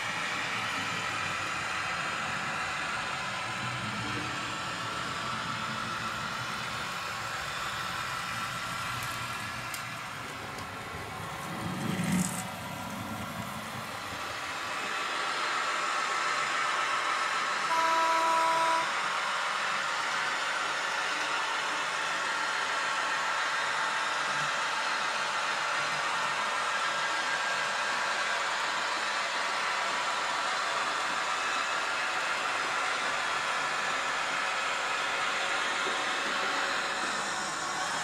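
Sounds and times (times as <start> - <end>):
diesel engine running: 0.0 - 14.8
train horn: 17.6 - 19.1.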